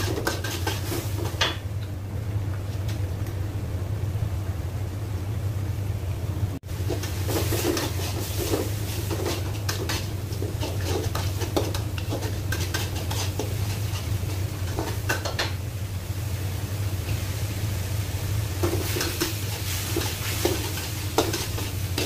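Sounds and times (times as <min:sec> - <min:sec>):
metal spatula scraping a wok: 0:00.0 - 0:01.4, 0:06.9 - 0:15.1, 0:18.6 - 0:22.0
steady low hum: 0:00.0 - 0:22.0.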